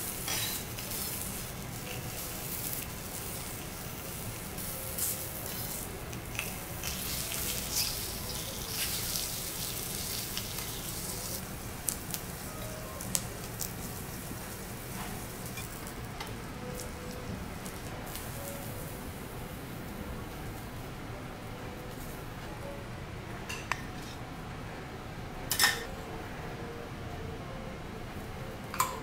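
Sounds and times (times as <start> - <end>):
food sizzling on a griddle: 0.0 - 19.8.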